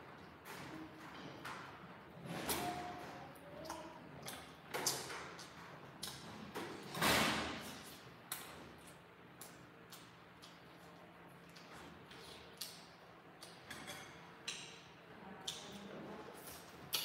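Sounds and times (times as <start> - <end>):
person chewing food: 7.8 - 13.7.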